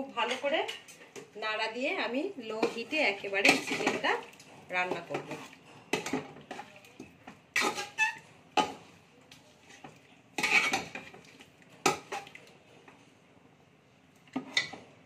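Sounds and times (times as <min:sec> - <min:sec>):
metal spatula scraping a pot: 0:02.4 - 0:06.8, 0:07.5 - 0:08.9, 0:09.6 - 0:12.4, 0:14.4 - 0:14.8.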